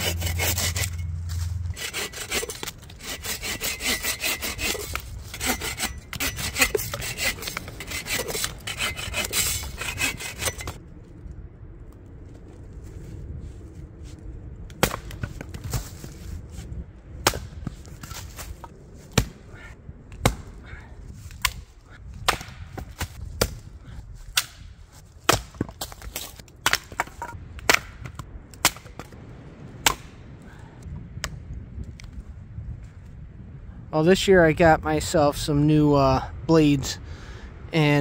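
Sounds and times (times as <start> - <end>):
axe chopping wood: 14.7 - 15.9, 17.2 - 19.4, 20.1 - 20.5, 22.2 - 23.7, 24.3 - 24.6, 25.2 - 29.2, 29.8 - 30.1.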